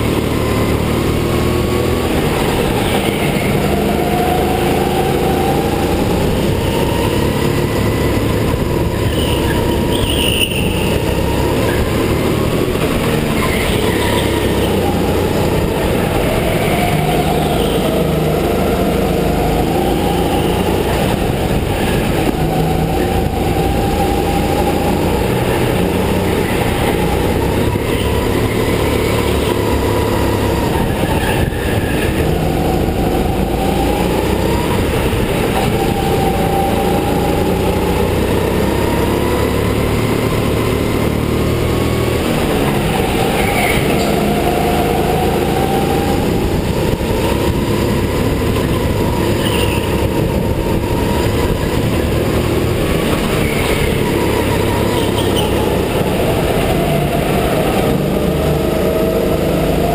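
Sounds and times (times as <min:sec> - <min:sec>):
go-kart motor running: 0:00.0 - 0:59.9.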